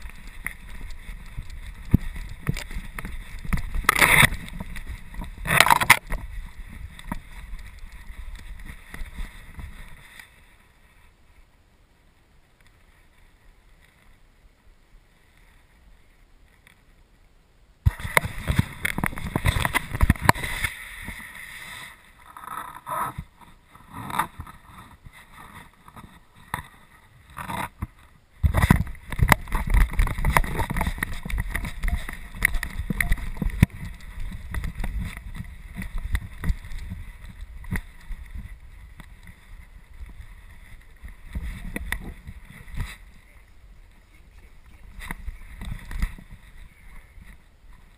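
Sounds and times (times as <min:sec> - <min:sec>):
bumping and rustling in snow: 0:28.4 - 0:43.5.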